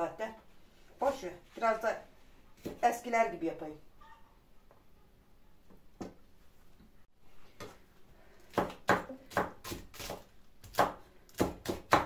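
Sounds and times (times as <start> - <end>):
knife chopping on cutting board: 8.5 - 12.0.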